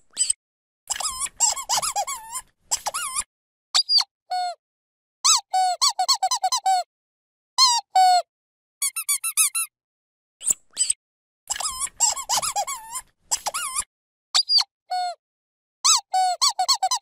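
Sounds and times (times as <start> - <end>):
dog squeaky toy squeaking: 0.2 - 4.1, 5.3 - 6.8, 7.6 - 8.2, 8.8 - 9.7, 10.4 - 14.7, 15.9 - 17.0.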